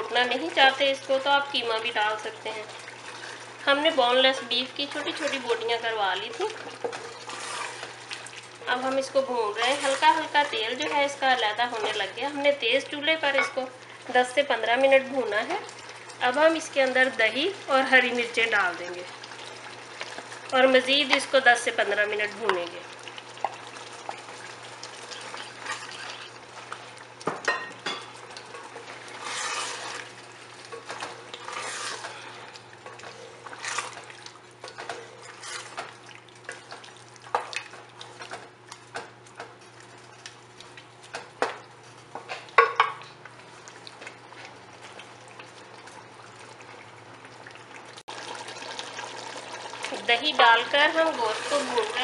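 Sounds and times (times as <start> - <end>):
meat sizzling: 0.0 - 52.0
wooden spoon scraping metal pot: 6.5 - 8.0, 9.5 - 12.1, 28.6 - 30.1, 30.7 - 34.0, 35.0 - 35.9, 50.9 - 52.0.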